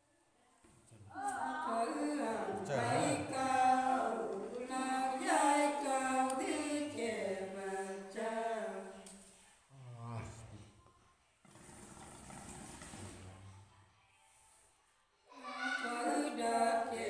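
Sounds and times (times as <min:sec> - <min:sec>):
woman singing unaccompanied: 0:01.1 - 0:09.0, 0:15.6 - 0:17.0.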